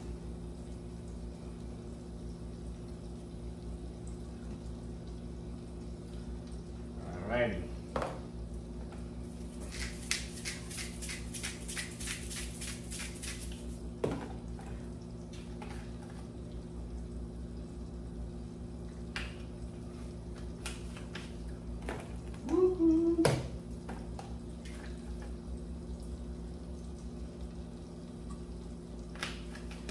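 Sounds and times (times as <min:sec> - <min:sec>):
steady low hum: 0:00.0 - 0:29.9
seasoning shaker shaking: 0:09.6 - 0:13.8.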